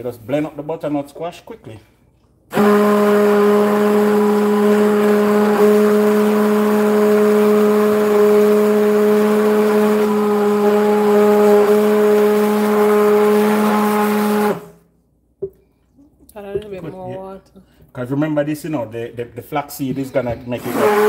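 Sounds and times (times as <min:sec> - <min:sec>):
immersion blender motor humming: 0:02.5 - 0:14.8, 0:20.6 - 0:21.0.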